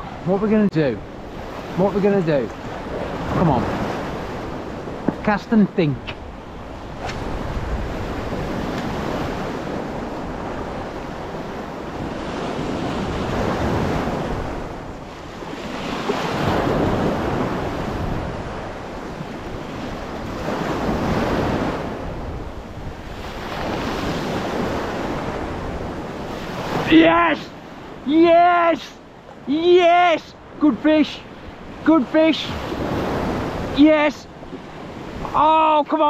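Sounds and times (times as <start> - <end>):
waves breaking on rocks: 0.0 - 36.0
wind buffeting microphone: 1.0 - 28.1.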